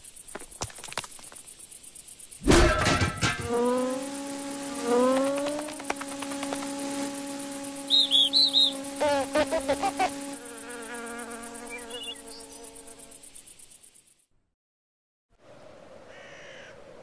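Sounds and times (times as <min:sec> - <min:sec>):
cartoon buzzing wing drone: 0:03.2 - 0:13.2
wavering calls: 0:07.8 - 0:10.4, 0:11.6 - 0:12.6
short high chirps: 0:07.9 - 0:08.8
fast warbling squeaks: 0:07.9 - 0:10.3.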